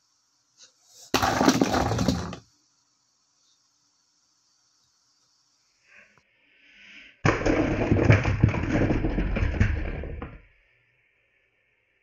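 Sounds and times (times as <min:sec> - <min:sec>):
toy truck clattering on plastic track: 0:01.1 - 0:02.4.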